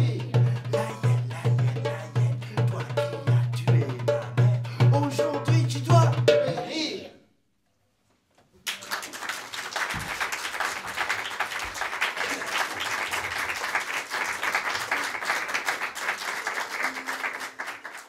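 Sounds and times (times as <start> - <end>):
audience applauding: 8.6 - 18.0.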